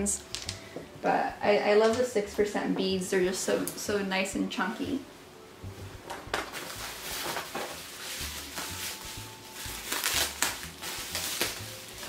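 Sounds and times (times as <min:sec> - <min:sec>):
faint background music: 0:00.0 - 0:12.0
bubble wrap crinkling: 0:06.2 - 0:12.0.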